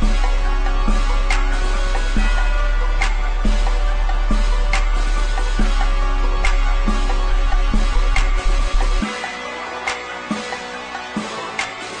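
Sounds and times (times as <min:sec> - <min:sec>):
rap instrumental beat: 0:00.0 - 0:12.0.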